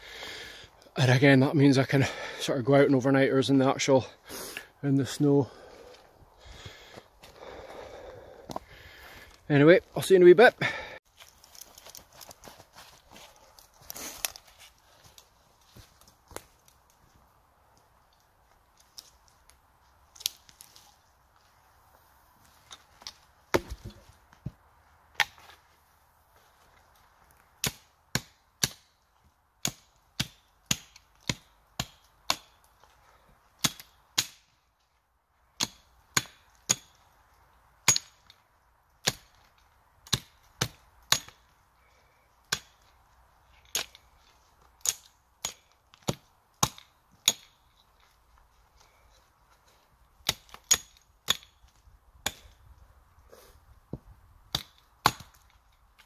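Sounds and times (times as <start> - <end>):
hatchet chopping wood: 23.5 - 24.0, 27.6 - 28.9, 29.6 - 32.7, 33.6 - 34.5, 35.6 - 37.1, 37.8 - 38.4, 39.0 - 41.5, 42.4 - 42.9, 43.6 - 44.0, 44.8 - 47.6, 50.2 - 52.7, 53.9 - 55.6.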